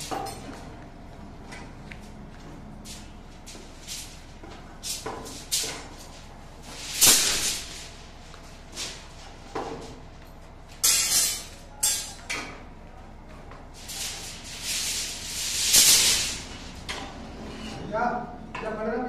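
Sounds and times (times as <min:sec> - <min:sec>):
steel bars rattling and scraping: 0:10.8 - 0:12.5, 0:13.8 - 0:17.9.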